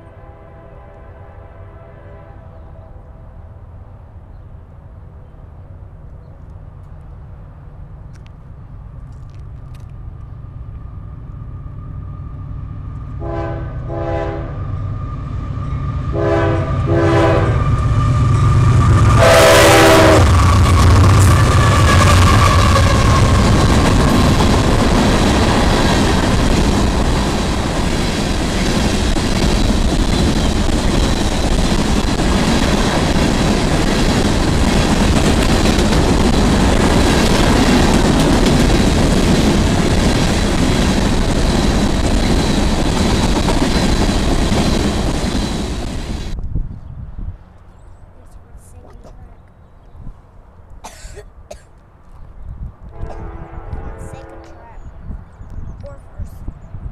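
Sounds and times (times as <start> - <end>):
locomotive air horn blasts: 0.0 - 3.1, 13.2 - 14.6, 16.1 - 18.3, 19.1 - 23.5, 52.9 - 54.7
locomotive rumbling past: 0.0 - 50.6, 51.9 - 56.9
train wheels rumbling and clattering: 5.7 - 13.2, 14.6 - 46.7.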